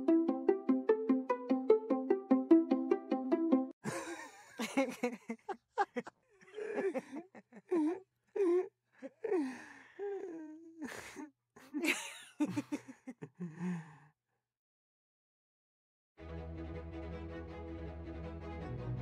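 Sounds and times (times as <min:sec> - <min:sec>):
wordless gasps and whimpering cries: 0:06.5 - 0:11.8.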